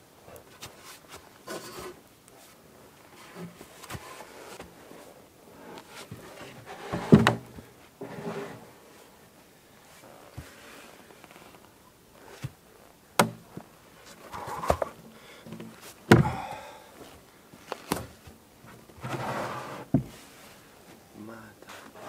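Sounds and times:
log scraping on wood: 0.5 - 2.5, 3.1 - 9.0, 19.0 - 20.4
log thudding on wooden sawhorse: 6.4 - 8.6, 13.2 - 13.7, 14.3 - 16.7, 19.0 - 20.2.

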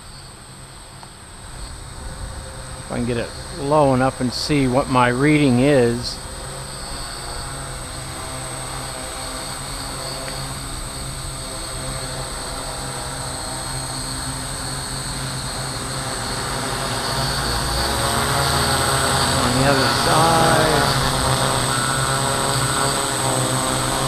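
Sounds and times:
drone motors buzzing: 6.2 - 24.0.

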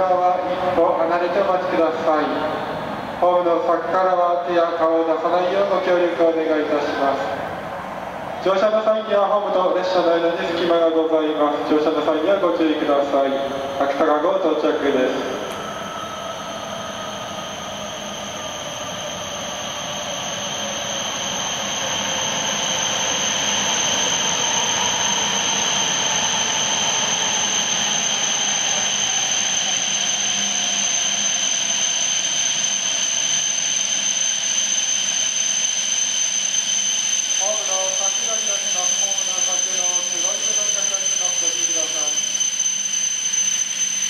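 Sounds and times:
high-speed train rushing: 0.0 - 32.6
high whining tones: 0.0 - 44.0.

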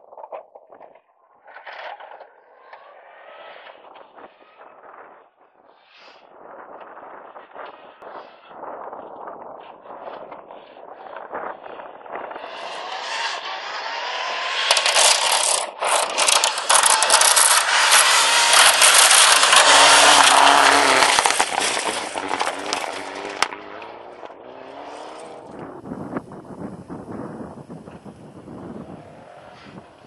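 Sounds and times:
rally car engine passing: 12.1 - 30.0
gravel spraying under tyres: 14.6 - 23.6.

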